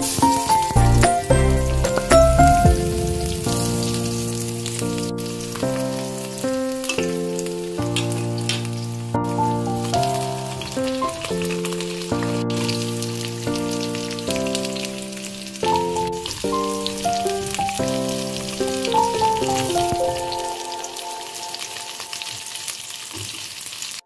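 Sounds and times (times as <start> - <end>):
onions sizzling in hot oil: 0.0 - 0.8, 2.8 - 24.0
background music of sustained chords: 0.6 - 5.8.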